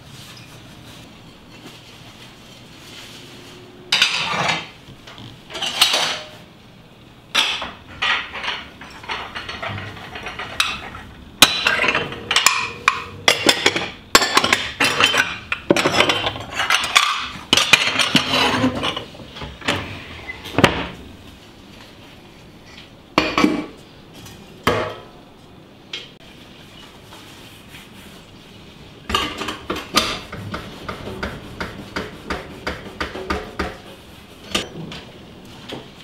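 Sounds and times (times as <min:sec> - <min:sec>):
plates clinking and knocking: 0:03.9 - 0:06.3, 0:07.3 - 0:19.9
towel rubbing plates: 0:26.6 - 0:34.6.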